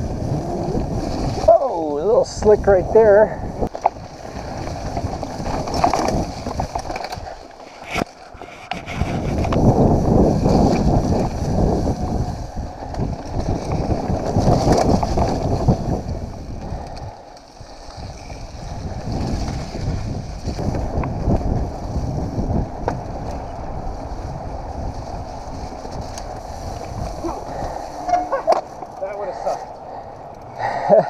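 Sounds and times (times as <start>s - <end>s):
bike tyre rumble on dirt: 0.0s - 31.0s
wind buffeting microphone: 0.0s - 31.0s
bike knocks and rattles: 3.6s - 12.2s, 12.8s - 16.8s, 17.8s - 23.7s.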